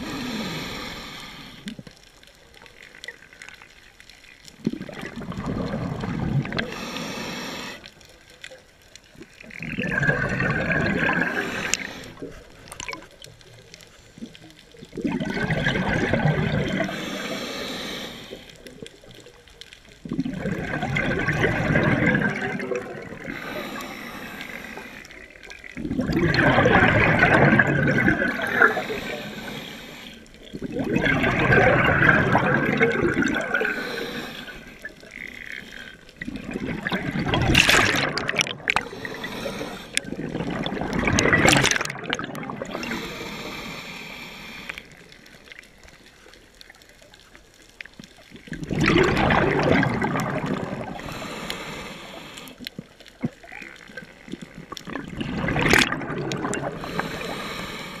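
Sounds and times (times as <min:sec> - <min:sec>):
regulator hiss on inhalation: 0:00.0 - 0:01.8, 0:06.5 - 0:08.0, 0:11.1 - 0:12.4, 0:16.8 - 0:18.8, 0:23.2 - 0:25.3, 0:28.2 - 0:30.3, 0:33.2 - 0:36.0, 0:38.8 - 0:40.1, 0:42.7 - 0:45.3, 0:50.9 - 0:52.7, 0:56.7 - 0:58.0
exhaled bubbles rushing: 0:04.5 - 0:06.8, 0:09.1 - 0:13.4, 0:14.2 - 0:17.3, 0:20.0 - 0:23.9, 0:24.8 - 0:29.6, 0:30.4 - 0:43.2, 0:48.1 - 0:51.3, 0:53.2 - 0:57.4.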